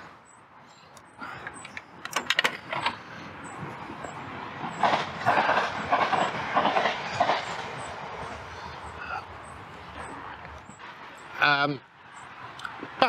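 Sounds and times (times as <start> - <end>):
sharp clicks: 0.9 - 3.0.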